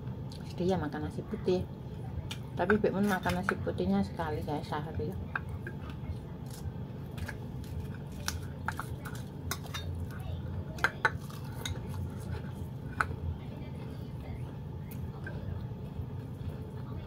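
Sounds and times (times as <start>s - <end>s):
steady low hum: 0.0s - 17.0s
chewing: 5.3s - 17.0s.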